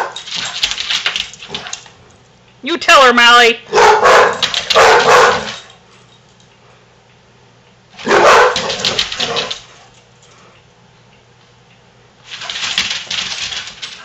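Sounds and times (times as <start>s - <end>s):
dogs barking: 0.0s - 0.6s, 3.7s - 5.6s, 8.0s - 9.6s.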